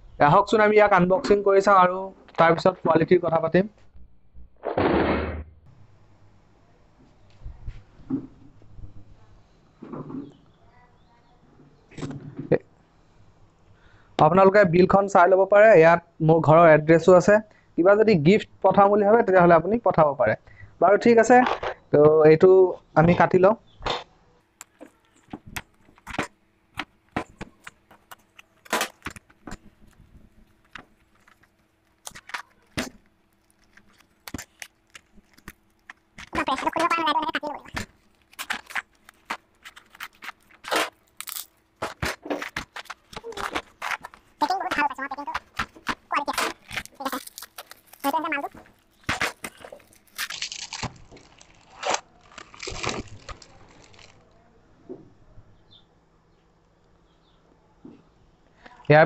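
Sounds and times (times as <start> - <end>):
cardboard tearing and crumpling: 27.2 - 54.2
knife cutting packing tape: 31.0 - 53.6.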